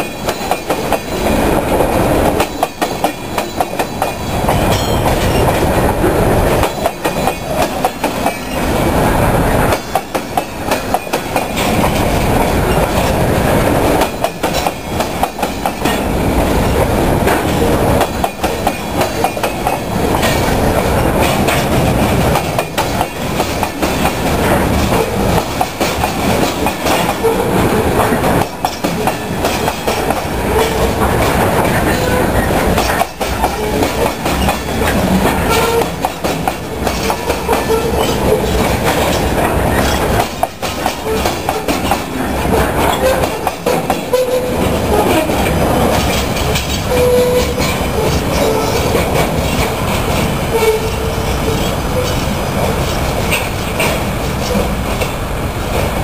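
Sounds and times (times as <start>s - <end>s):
train wheels rumbling on rail: 0.0s - 56.0s
clicking over rail joints: 28.0s - 55.2s.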